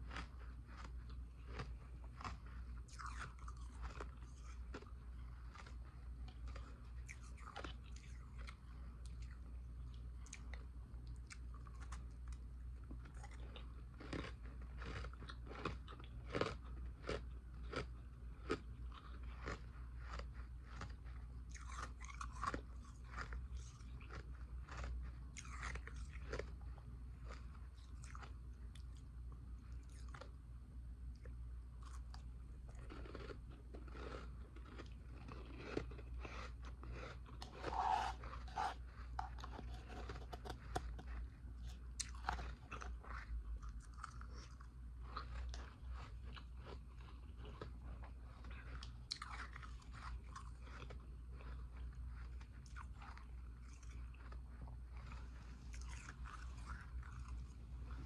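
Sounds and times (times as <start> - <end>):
ice being crunched and chewed: 0.0 - 10.6, 11.2 - 29.0, 31.2 - 58.0
steady low hum: 0.0 - 58.0.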